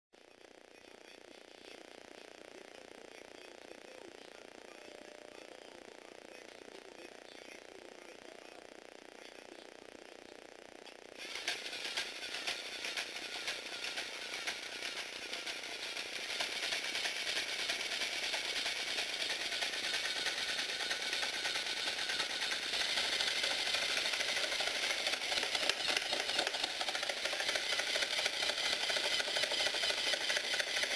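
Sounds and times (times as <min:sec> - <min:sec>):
toy motor plastic clatter: 0:11.2 - 0:30.9.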